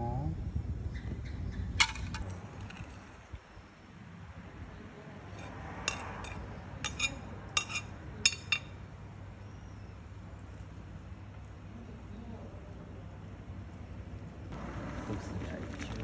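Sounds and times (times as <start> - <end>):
metal ladle clinking on dishes: 5.4 - 8.8.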